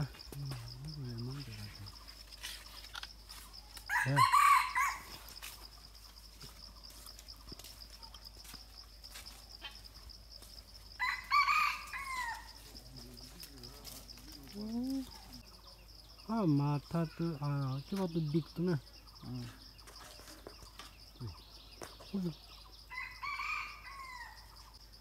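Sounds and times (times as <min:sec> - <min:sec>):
insects buzzing: 0:00.0 - 0:25.0
rooster crowing: 0:03.9 - 0:05.2, 0:11.0 - 0:12.6, 0:22.9 - 0:24.5.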